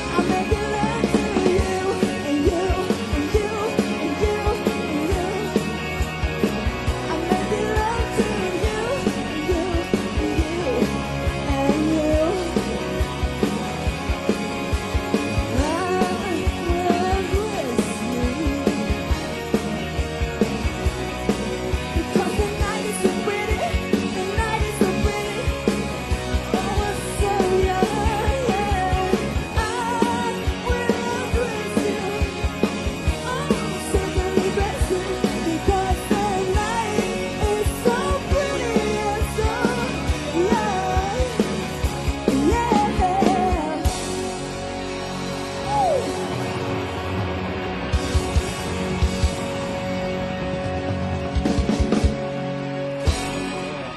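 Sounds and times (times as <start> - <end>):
person singing: 0.0 - 5.8, 7.0 - 13.0, 15.4 - 19.2, 21.9 - 25.8, 26.4 - 44.0
electric guitar: 0.0 - 53.9
rock band playing: 0.0 - 53.9.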